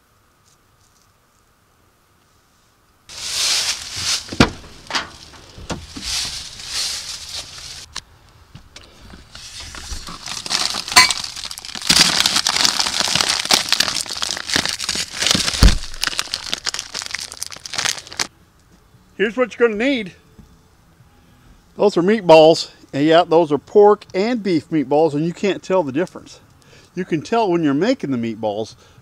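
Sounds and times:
plastic packaging crinkling: 3.1 - 8.0, 9.3 - 18.3
dull knocks: 4.3 - 6.2.

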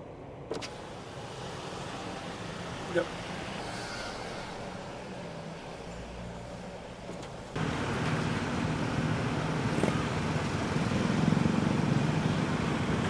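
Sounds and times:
road and traffic noise: 0.0 - 13.0
vehicle engine running: 7.4 - 13.0.

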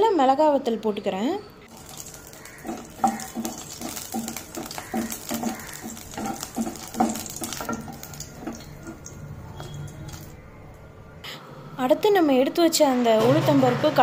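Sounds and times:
spatula scraping a pan: 1.7 - 10.3
oil sizzling: 1.7 - 10.5.

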